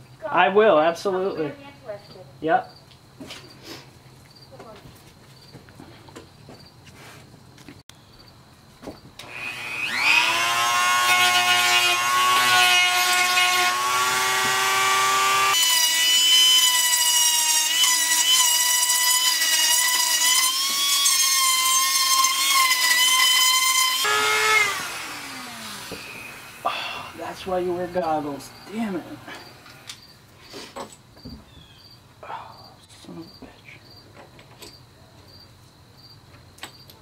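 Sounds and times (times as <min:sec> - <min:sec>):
rotary tool whining: 0:09.2 - 0:26.7.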